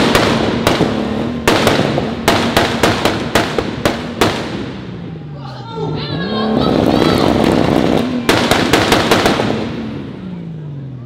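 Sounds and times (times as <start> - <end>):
exhaust pops and bangs: 0.0 - 5.0, 6.8 - 10.2
car engine running: 0.0 - 11.0.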